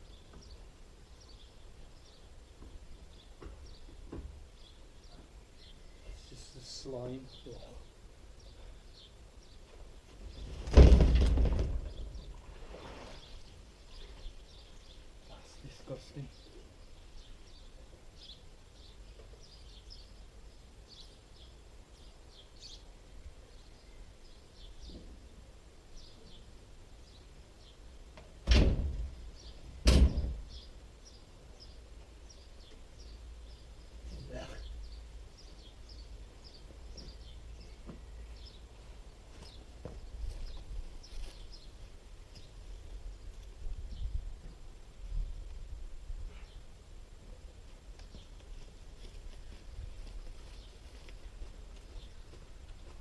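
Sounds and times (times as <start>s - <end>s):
water tank thudding on ground: 10.6s - 11.9s.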